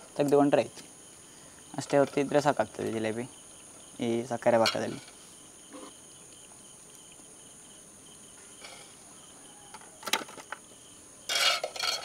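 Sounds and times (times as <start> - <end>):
crickets chirring: 0.0 - 12.0
steel utensils clattering: 11.3 - 12.0.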